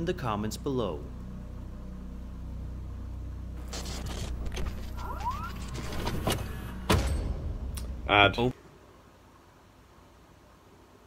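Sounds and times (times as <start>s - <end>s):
low droning sound-design bed: 0.0s - 8.6s.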